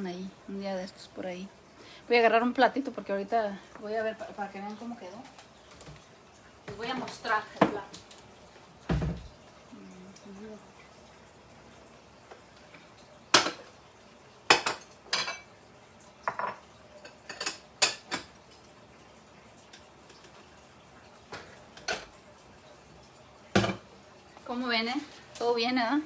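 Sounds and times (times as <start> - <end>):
dishes clinking and clattering: 13.3 - 13.8, 14.5 - 15.6, 16.2 - 18.4, 21.2 - 22.2, 23.5 - 23.9.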